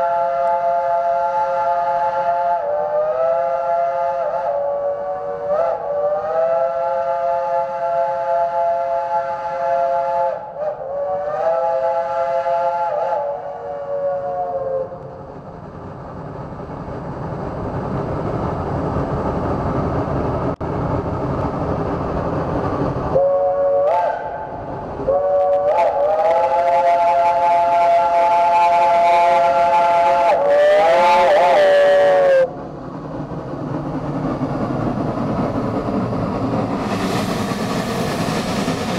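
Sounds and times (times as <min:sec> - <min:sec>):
steam locomotive chime whistle: 0:00.0 - 0:15.0, 0:23.2 - 0:32.5
locomotive exhaust and running gear: 0:00.0 - 0:38.9.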